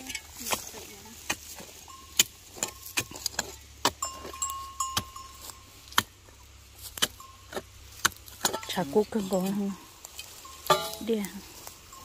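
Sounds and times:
thin steady squeal: 0.0s - 8.0s, 8.6s - 12.0s
sharp knocks and clinks: 1.3s - 6.4s, 7.0s - 11.3s.

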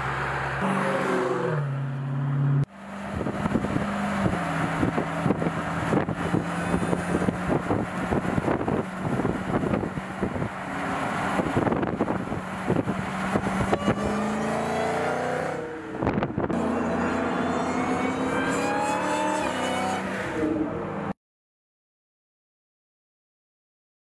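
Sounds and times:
car engine accelerating: 0.0s - 21.1s.

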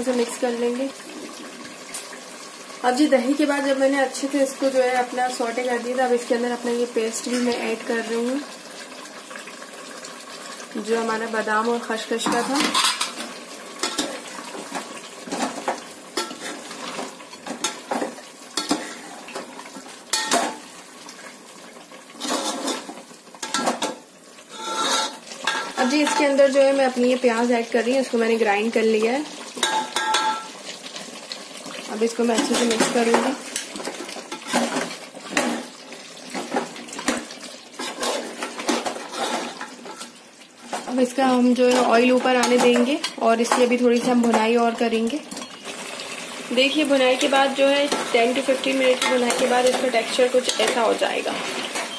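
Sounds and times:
gravy sloshing and sizzling: 0.0s - 51.9s
spoon scraping metal pot: 12.2s - 13.2s, 22.2s - 23.7s, 24.5s - 26.4s, 37.8s - 40.2s, 47.8s - 51.9s
spoon stirring in metal pot: 12.2s - 19.5s, 22.2s - 26.5s, 29.6s - 30.5s, 41.6s - 44.5s, 47.6s - 51.9s
metal scrapes and knocks: 24.6s - 25.8s.

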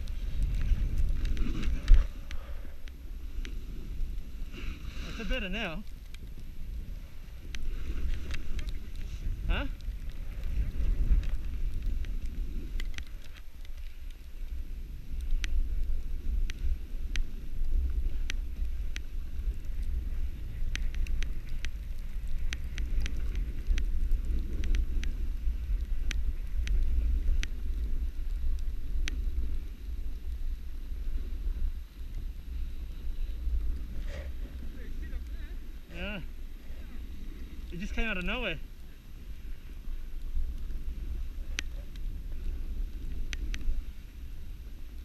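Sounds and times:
snowboard sliding over snow: 0.0s - 45.0s
wind buffeting microphone: 0.0s - 45.0s
sharp ticks: 15.1s - 29.2s.

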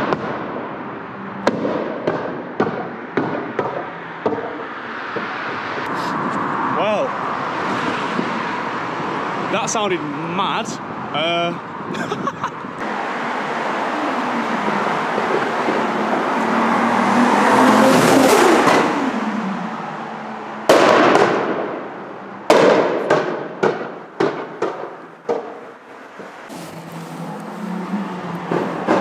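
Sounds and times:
exhaust bangs and pops: 0.0s - 0.8s, 1.4s - 6.4s, 18.0s - 19.2s, 20.6s - 27.0s, 28.0s - 29.0s
car engine accelerating past: 13.0s - 20.3s, 26.4s - 29.0s.

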